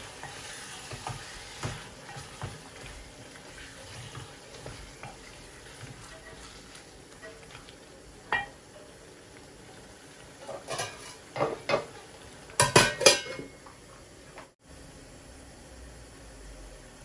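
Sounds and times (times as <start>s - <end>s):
metal lid clanging on pot: 8.3s - 8.6s, 10.5s - 11.9s, 12.6s - 13.5s
metal spoon clinking on pot: 8.3s - 8.6s, 12.6s - 13.5s.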